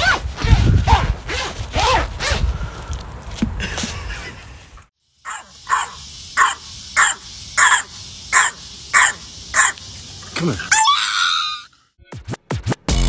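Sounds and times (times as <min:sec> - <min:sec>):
puppy barking: 0:05.3 - 0:09.8.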